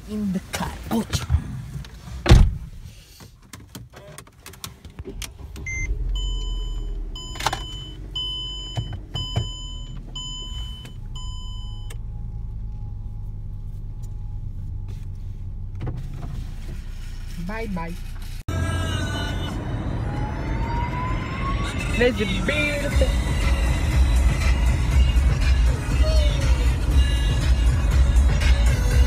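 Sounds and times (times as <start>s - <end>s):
car engine starting and idling: 0.0s - 29.0s
thud: 2.2s - 2.7s
dashboard warning chime: 5.6s - 12.0s.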